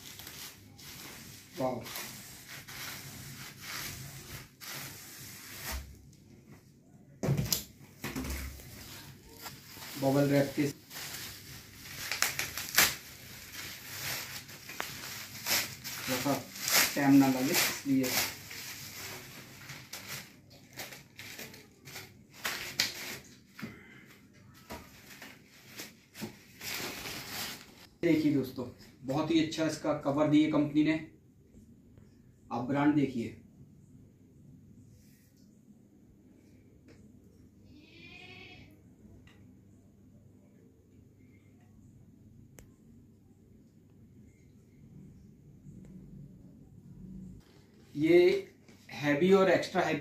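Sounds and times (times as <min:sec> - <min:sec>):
bubble wrap rustling: 0:00.0 - 0:06.1, 0:07.9 - 0:23.6, 0:24.5 - 0:28.2, 0:47.4 - 0:49.8.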